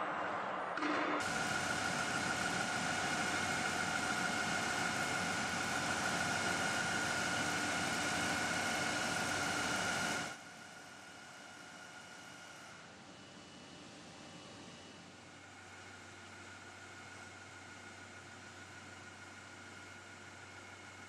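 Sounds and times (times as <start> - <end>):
machinery humming: 0.0 - 10.3.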